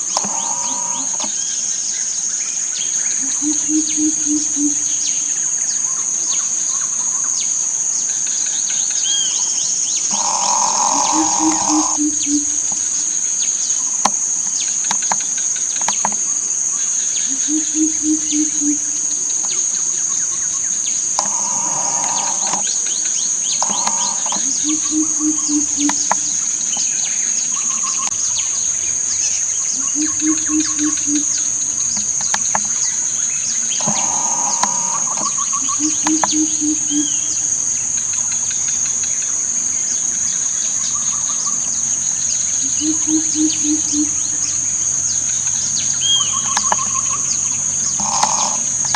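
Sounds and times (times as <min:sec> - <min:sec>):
bird low hooting calls: 0:00.0 - 0:01.6, 0:09.9 - 0:12.9, 0:21.0 - 0:26.4, 0:29.7 - 0:37.4, 0:42.6 - 0:44.4, 0:45.5 - 0:48.9
high-pitched insect drone: 0:00.0 - 0:02.0, 0:05.9 - 0:14.0, 0:14.6 - 0:48.9.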